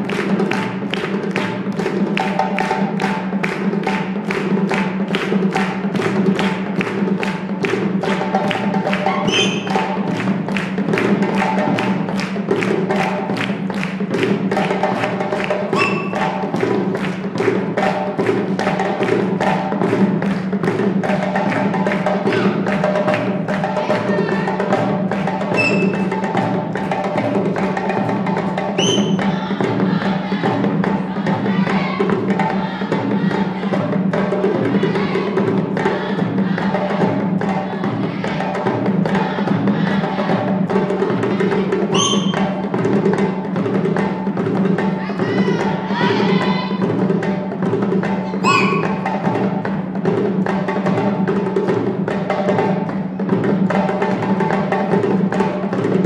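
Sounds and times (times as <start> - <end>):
hand drumming: 0.0 - 56.0
brief high-pitched sounds: 15.8 - 16.2, 48.4 - 49.0.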